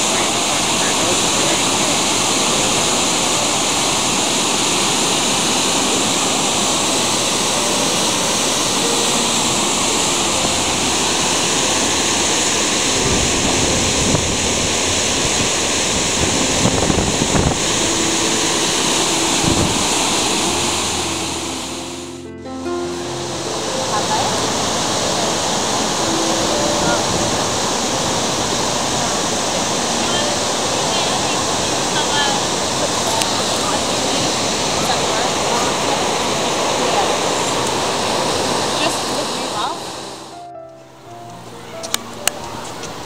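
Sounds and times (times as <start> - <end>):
steady rushing outdoor noise: 0.0 - 43.0
wind buffeting the microphone: 10.3 - 21.1.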